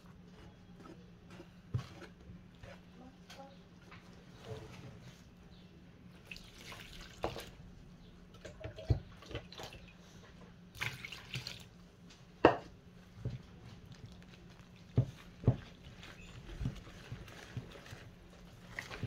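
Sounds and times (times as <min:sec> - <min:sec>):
whisk knocking and scraping bowl: 0:00.4 - 0:03.0
water pouring into flour: 0:06.2 - 0:07.6, 0:10.7 - 0:11.7.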